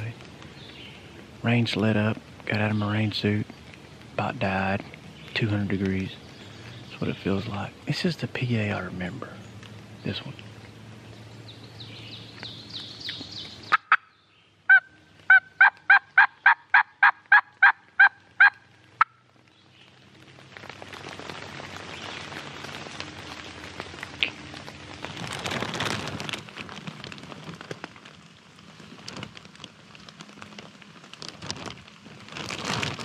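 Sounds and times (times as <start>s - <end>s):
steady rushing hiss: 0.0s - 13.7s, 18.7s - 32.3s
turkey call yelps: 13.7s - 14.1s, 14.7s - 19.2s.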